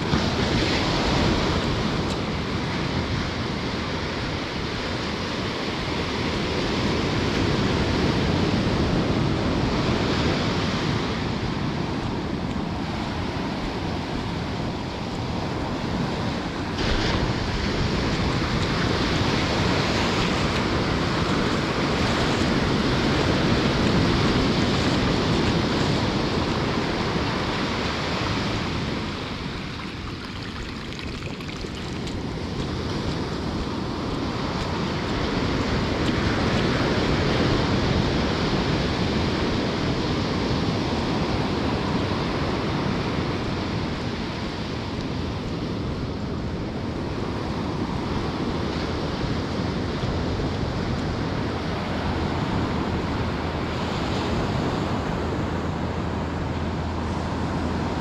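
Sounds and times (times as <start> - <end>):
ocean surf breaking on sand: 0.0 - 58.0.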